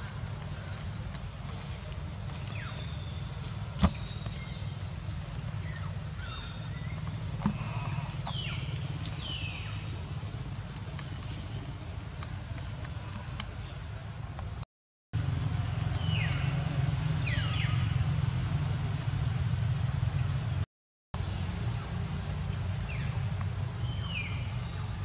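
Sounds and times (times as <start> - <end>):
birds chirping and whistling: 0.3 - 12.7, 15.9 - 16.6, 17.2 - 17.9.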